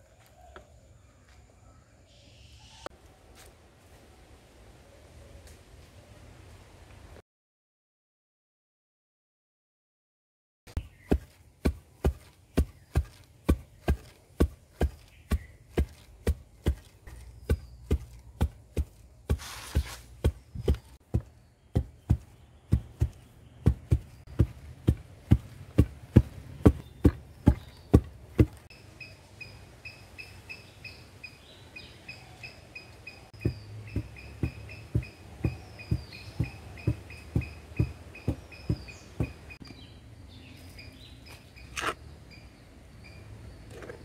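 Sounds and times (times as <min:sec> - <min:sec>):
pestles pounding in stone mortar: 0:10.9 - 0:28.7, 0:33.4 - 0:39.6.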